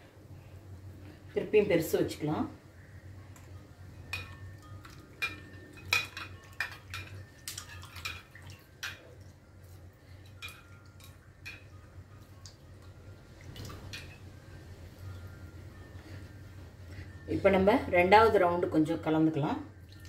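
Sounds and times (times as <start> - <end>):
low steady hum: 0.0 - 20.0
dishes and utensils clinking: 3.4 - 9.3, 10.2 - 11.9, 13.6 - 14.4.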